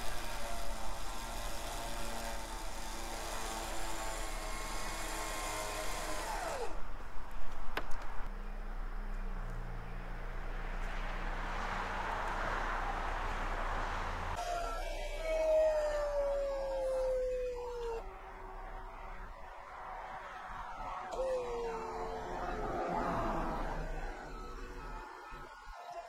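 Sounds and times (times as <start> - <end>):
electric winch whining: 0.0 - 6.8, 14.2 - 26.0.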